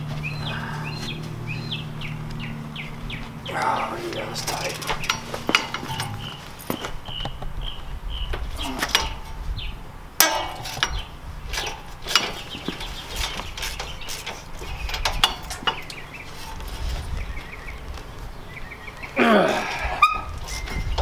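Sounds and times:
hand tools clinking on metal: 3.5 - 7.1, 8.6 - 9.4, 10.2 - 16.8.

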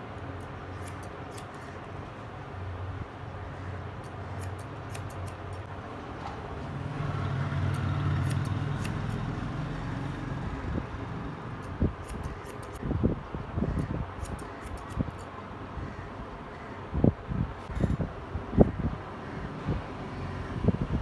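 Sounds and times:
scissors snipping hair: 0.4 - 1.8, 4.0 - 5.7, 7.6 - 9.3, 11.6 - 12.8, 13.7 - 15.3.

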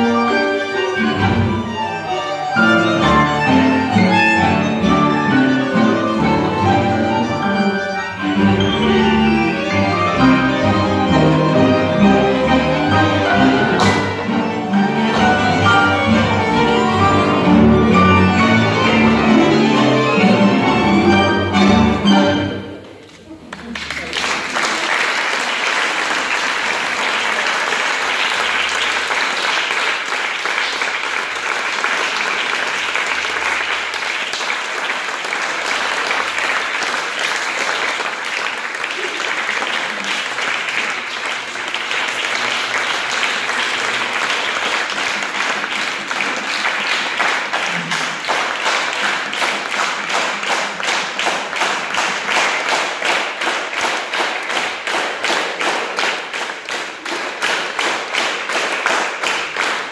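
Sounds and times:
audience applauding: 2.6 - 21.0, 23.1 - 59.9
rhythmic clapping in unison: 9.8 - 19.3, 23.5 - 59.9.

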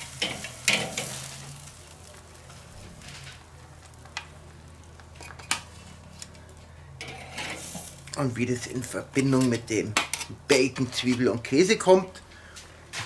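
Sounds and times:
faint sizzle: 0.0 - 12.9
metal tongs clinking on grate: 0.1 - 1.4, 7.0 - 7.9.

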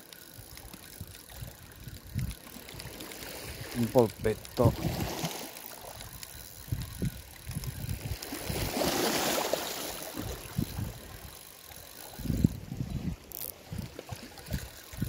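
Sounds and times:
water lapping on rocky shore: 0.0 - 15.0
wind buffeting microphone: 0.4 - 5.3, 5.9 - 9.0, 10.1 - 11.4, 12.1 - 15.0.

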